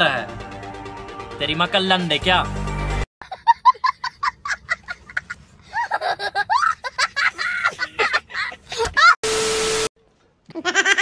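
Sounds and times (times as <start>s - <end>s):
boy laughing hysterically: 3.2s - 9.2s, 10.6s - 11.0s.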